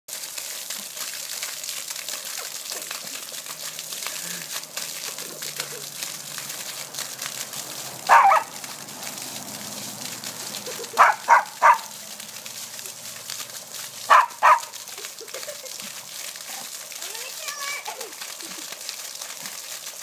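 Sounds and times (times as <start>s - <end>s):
sprinkler water spraying: 0.1s - 20.0s
puppy barking: 8.1s - 8.6s, 10.9s - 12.0s, 14.0s - 14.8s.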